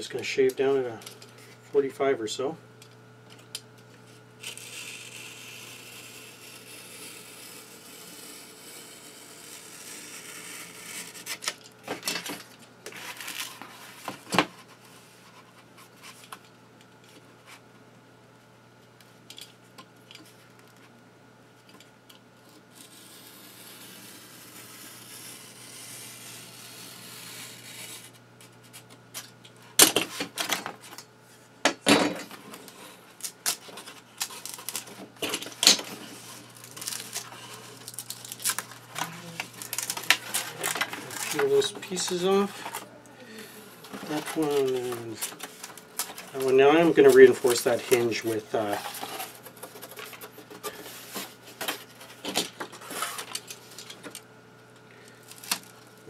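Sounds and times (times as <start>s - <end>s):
knife scraping along ruler: 22.7s - 28.8s.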